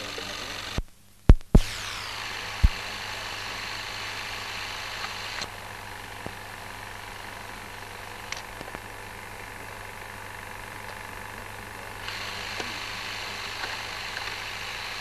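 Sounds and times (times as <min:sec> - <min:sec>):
film soundtrack hiss and hum: 0:00.0 - 0:15.0
film splice pops: 0:00.8 - 0:05.6.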